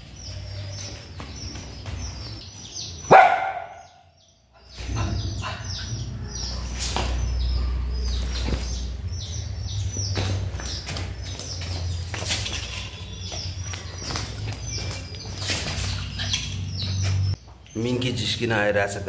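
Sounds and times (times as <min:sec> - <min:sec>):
small birds chirping: 0:00.0 - 0:19.0
small dog barking: 0:03.1 - 0:04.0.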